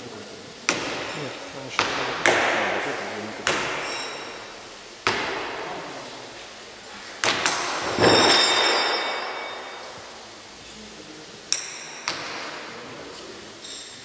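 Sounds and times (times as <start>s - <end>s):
knives striking wooden boards: 0.7s - 1.2s, 1.8s - 6.4s, 7.2s - 10.0s
faint high metallic ring: 8.0s - 10.3s.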